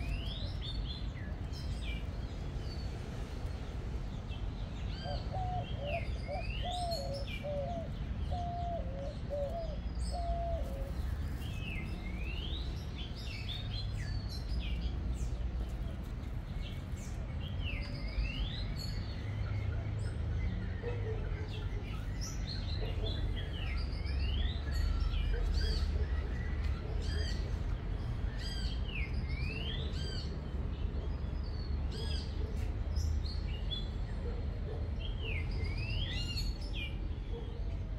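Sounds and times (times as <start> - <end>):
birds whistling and chirping: 4.8 - 15.7, 16.6 - 30.4.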